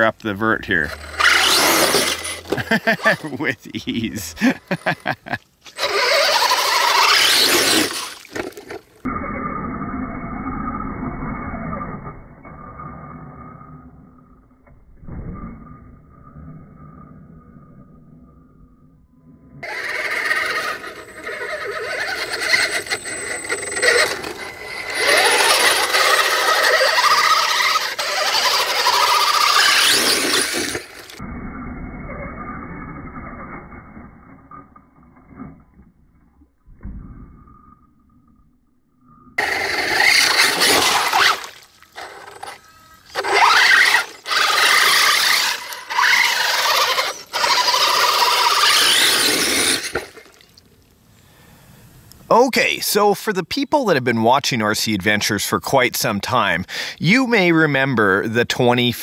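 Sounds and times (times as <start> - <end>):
tires grinding in mud: 0.0 - 13.5, 19.6 - 34.4, 39.4 - 50.6
electric motor whining: 0.7 - 3.3, 5.7 - 8.4, 19.6 - 31.2, 39.4 - 50.2.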